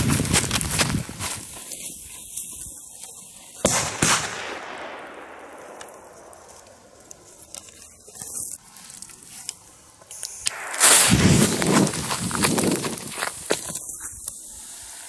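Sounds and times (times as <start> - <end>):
firecracker bang: 3.6 - 7.3, 10.5 - 13.6
firecracker crack: 3.6 - 15.0.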